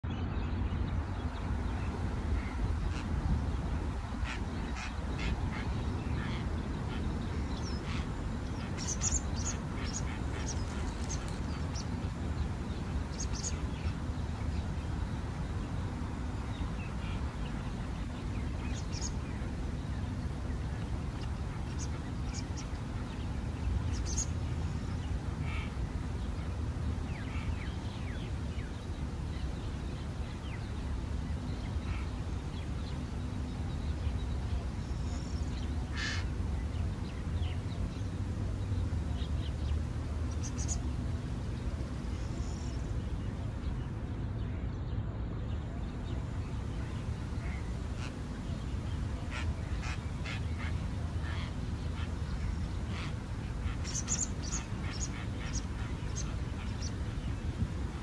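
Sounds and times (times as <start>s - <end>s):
bird calls: 0.1s - 12.0s, 23.9s - 38.1s, 45.6s - 57.6s.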